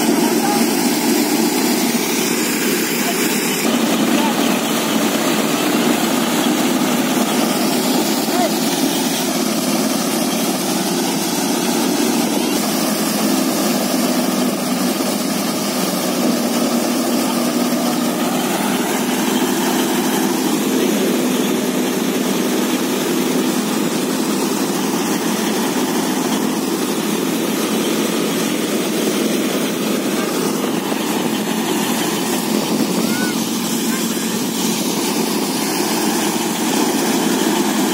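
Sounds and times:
thresher drum running: 0.0s - 37.9s
tractor engine humming: 0.0s - 37.9s.

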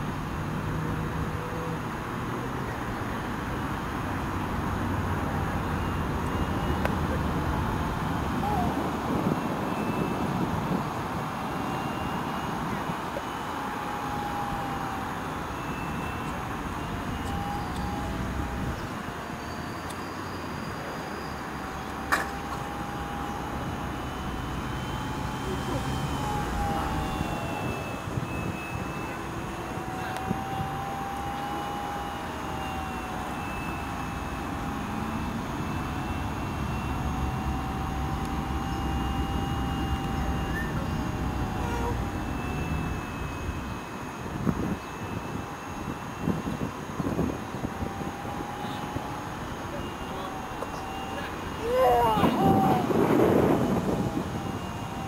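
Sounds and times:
low rumbling noise: 0.0s - 55.0s
model plane motor whine: 0.0s - 55.0s
steady rushing noise: 20.1s - 55.0s.

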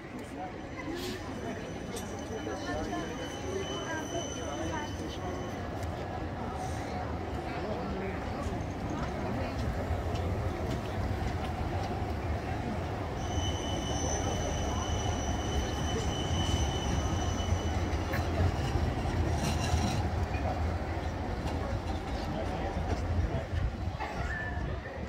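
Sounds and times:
tram rumbling on track: 0.0s - 25.0s
wheels squealing: 13.1s - 21.1s.

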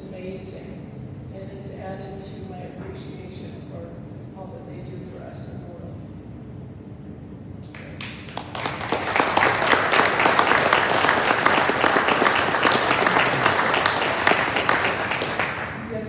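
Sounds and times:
audience applauding: 7.7s - 15.9s.

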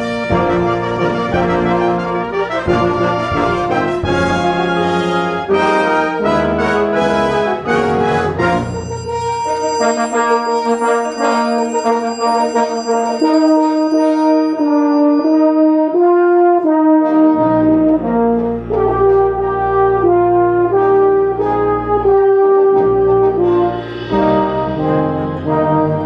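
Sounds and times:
low bass notes: 0.0s - 9.0s, 16.7s - 26.0s
brass fanfare: 0.0s - 26.0s
cymbal shimmer: 8.6s - 16.0s, 23.6s - 26.0s.

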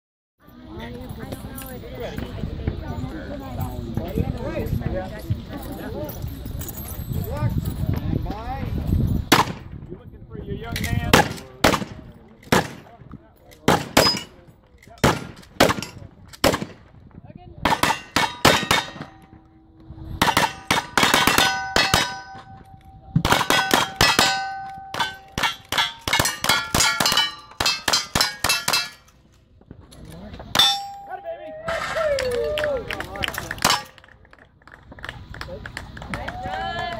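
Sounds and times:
steel plate clanging: 17.7s - 19.6s, 20.2s - 29.2s, 30.5s - 31.3s, 33.6s - 34.0s.

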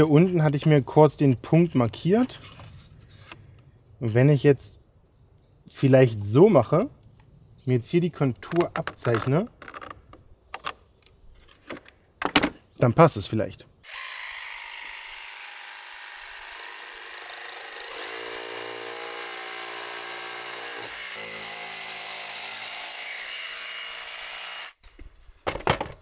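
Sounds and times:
electric jigsaw cutting wood: 13.8s - 24.8s.

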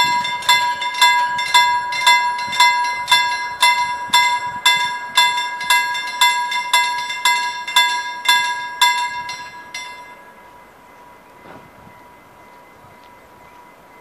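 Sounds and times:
level crossing bell ringing: 0.0s - 11.0s.

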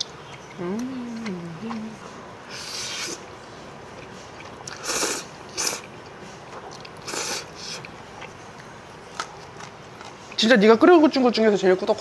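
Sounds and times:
person slurping noodles: 4.7s - 5.9s, 7.0s - 7.8s.

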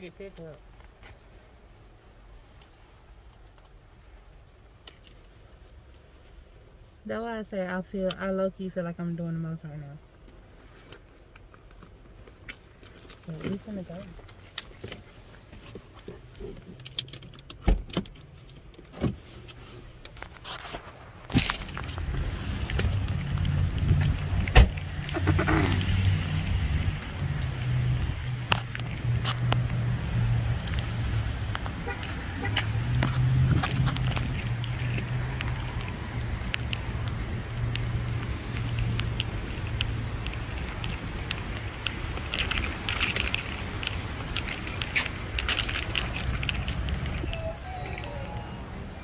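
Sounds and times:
rain clicks: 10.8s - 49.0s
steady low rumble: 20.2s - 49.0s
footsteps on wet asphalt: 20.3s - 49.0s
car door shutting: 24.4s - 24.8s.

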